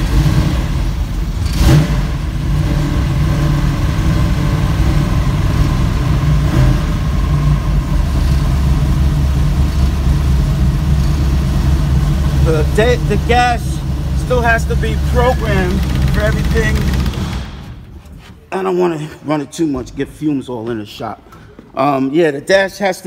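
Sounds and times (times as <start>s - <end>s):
engine idling: 0.0s - 18.2s.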